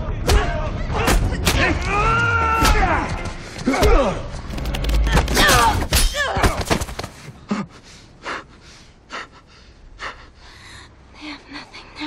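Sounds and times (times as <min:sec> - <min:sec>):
man breathing heavily: 0:07.1 - 0:12.0.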